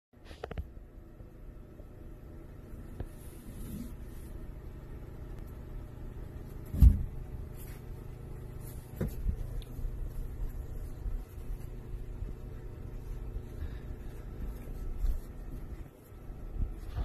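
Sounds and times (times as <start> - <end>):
steady low rumble: 0.7 - 17.0
soft bumps: 6.3 - 17.0
thuds of cats scuffling: 6.5 - 17.0.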